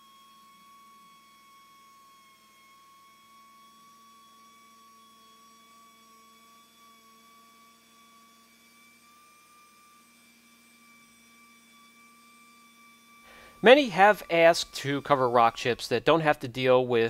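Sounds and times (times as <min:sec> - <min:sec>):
faint high-pitched hum: 0:13.3 - 0:17.0.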